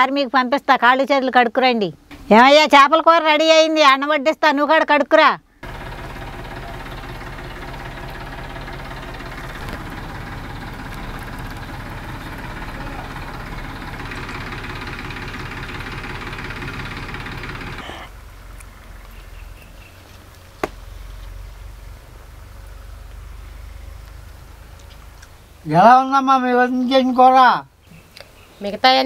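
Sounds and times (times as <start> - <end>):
motor running with even pulse: 5.6 - 20.0.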